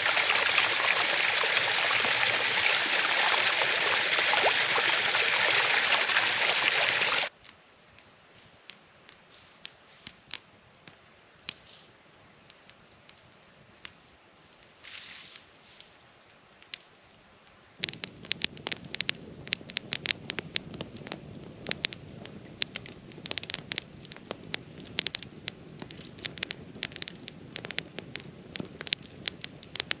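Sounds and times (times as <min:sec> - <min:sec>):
fire hiss: 0:00.0 - 0:07.3, 0:17.8 - 0:30.0
campfire crackling and popping: 0:00.0 - 0:30.0.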